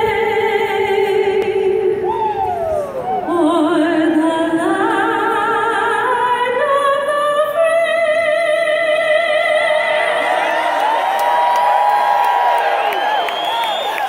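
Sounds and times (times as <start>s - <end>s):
woman singing over loudspeakers: 0.0s - 2.2s, 3.1s - 10.8s.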